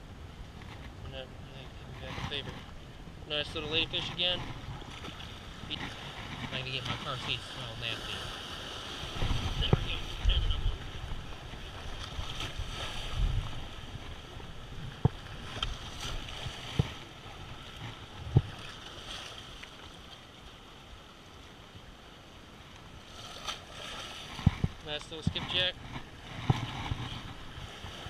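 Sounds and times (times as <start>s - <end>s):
wind rumbling on microphone: 0.0s - 19.6s, 23.1s - 28.0s
small waves splashing on rocks: 3.7s - 20.5s, 22.9s - 28.0s.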